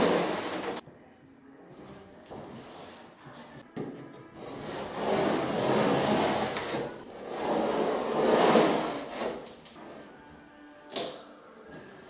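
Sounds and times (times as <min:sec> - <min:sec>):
paper scraping along straight edge: 0:00.0 - 0:00.8, 0:04.4 - 0:09.5.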